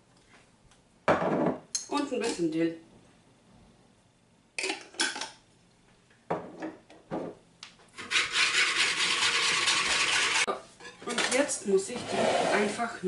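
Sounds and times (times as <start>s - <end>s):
utensil scraping round a bowl: 8.0s - 10.5s, 11.9s - 13.0s.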